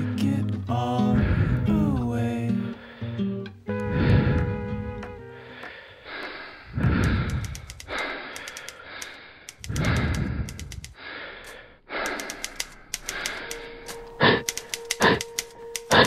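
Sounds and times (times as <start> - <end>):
heavy ragged breathing: 1.0 - 1.8, 2.6 - 15.2
steady hum tone: 3.7 - 5.6
faint clicks: 5.6 - 16.0.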